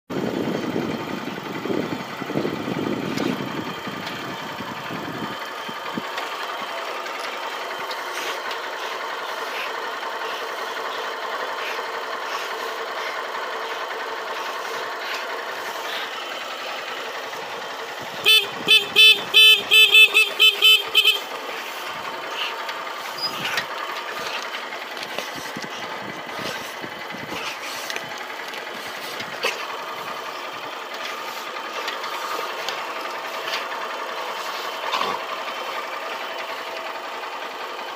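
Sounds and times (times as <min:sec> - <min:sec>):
motorcycle engine running: 0:00.1 - 0:37.9
horn beeping: 0:18.0 - 0:22.5.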